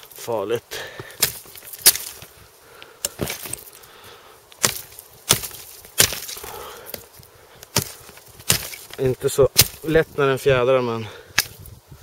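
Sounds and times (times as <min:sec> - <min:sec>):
blade chopping a branch: 0:01.0 - 0:02.3, 0:03.0 - 0:03.7, 0:04.6 - 0:10.1, 0:11.3 - 0:11.7.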